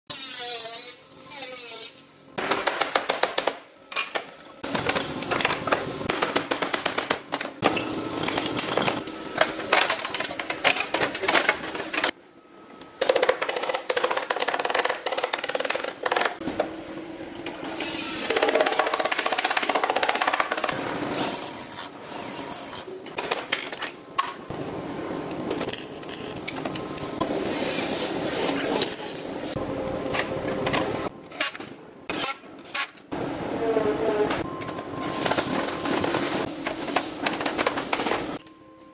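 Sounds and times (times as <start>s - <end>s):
air tools cutting sheet metal: 0.1s - 2.1s.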